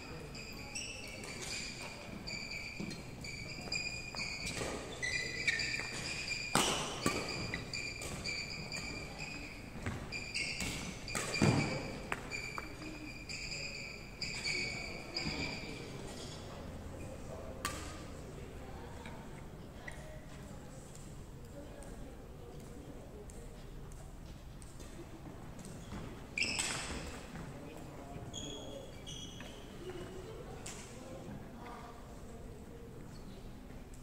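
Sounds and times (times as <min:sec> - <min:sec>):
shoes squeaking on wooden floor: 0:00.0 - 0:16.4, 0:25.6 - 0:30.2
rackets striking shuttlecock: 0:05.6 - 0:08.8.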